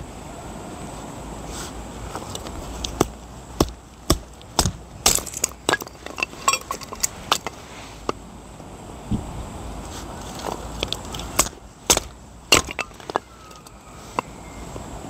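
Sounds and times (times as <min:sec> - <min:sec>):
sharp knocks and ringing clinks: 0:05.1 - 0:07.6.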